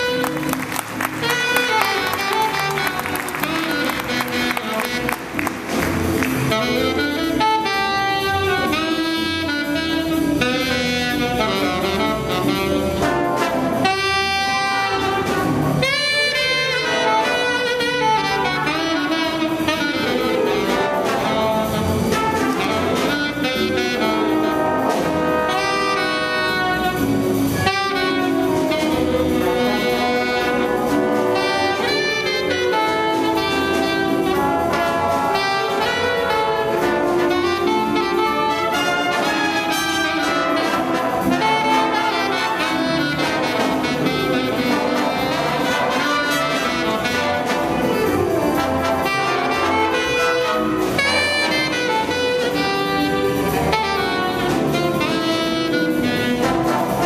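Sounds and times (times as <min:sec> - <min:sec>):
jazz big band playing: 0:00.0 - 0:57.0.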